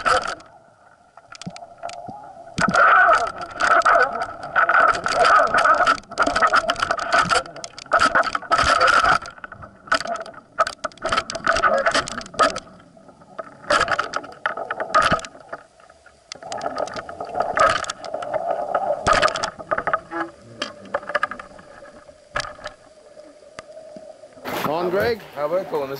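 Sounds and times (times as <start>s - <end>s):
droning hum: 0.0s - 25.9s.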